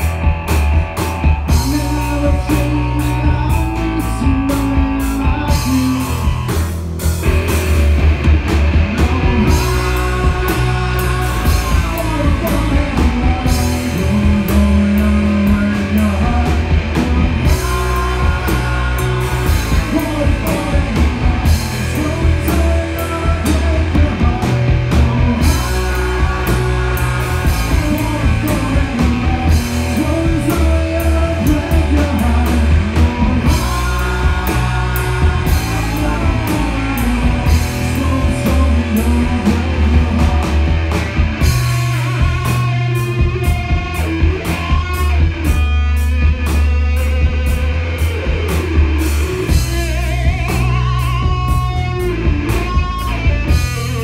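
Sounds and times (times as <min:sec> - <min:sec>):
drum kit: 0:00.0 - 0:54.0
electric guitar: 0:00.0 - 0:54.0
man singing: 0:01.4 - 0:06.6, 0:08.9 - 0:40.6.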